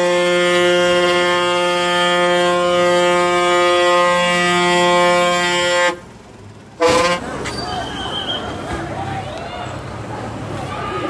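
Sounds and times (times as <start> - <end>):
vehicle horn blast: 0.0 - 6.1, 6.8 - 7.3.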